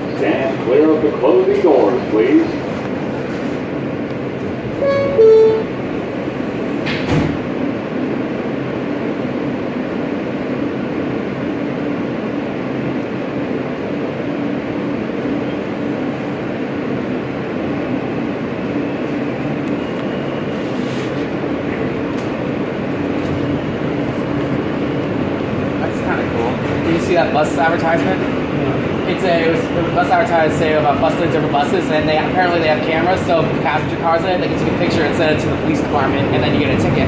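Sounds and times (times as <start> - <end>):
wheels rumbling on rail: 0.0 - 37.0
steady low tone: 4.7 - 6.2.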